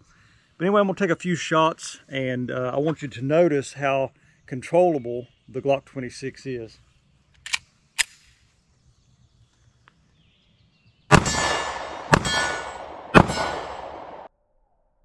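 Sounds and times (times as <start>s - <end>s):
short clicks: 7.4s - 8.4s
pistol shots: 11.1s - 14.3s
steel target clanging: 11.1s - 14.3s.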